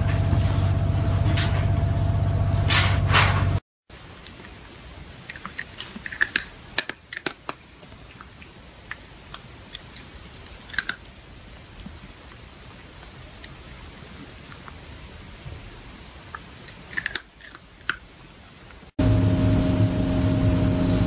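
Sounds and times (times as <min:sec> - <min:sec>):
loud hum: 0:00.0 - 0:03.6, 0:19.0 - 0:21.0.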